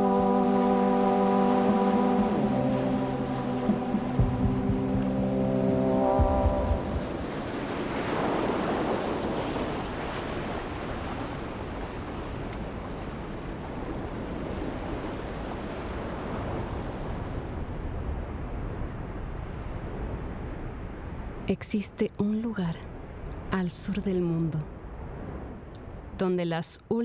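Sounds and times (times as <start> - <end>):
heavy ocean surf breaking: 0.0 - 21.1.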